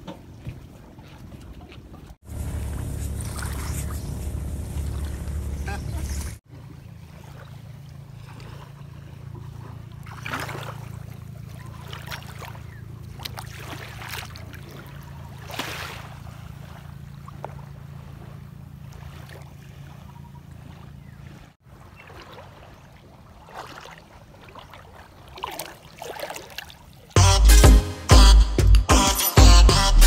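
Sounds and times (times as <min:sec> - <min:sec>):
feet splashing in shallow water: 0:00.0 - 0:27.2
low hum: 0:02.2 - 0:13.3.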